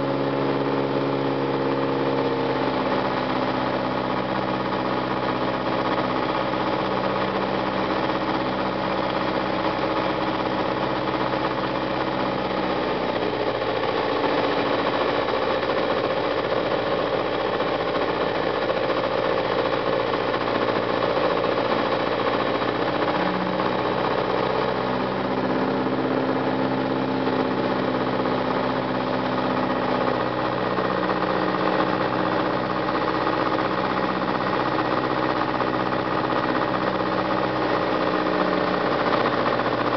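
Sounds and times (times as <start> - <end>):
light aircraft engine and propeller: 0.0 - 39.9.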